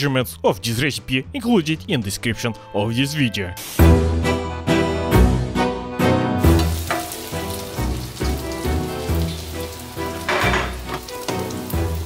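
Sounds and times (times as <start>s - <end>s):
background music: 0.0s - 12.0s
food sizzling in frying pan: 3.6s - 4.0s, 6.4s - 12.0s.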